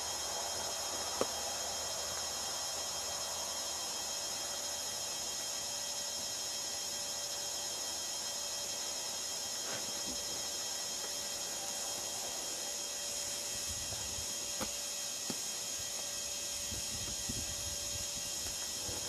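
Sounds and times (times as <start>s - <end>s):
steady background hiss: 0.0s - 5.8s
high-pitched whine: 0.0s - 19.0s.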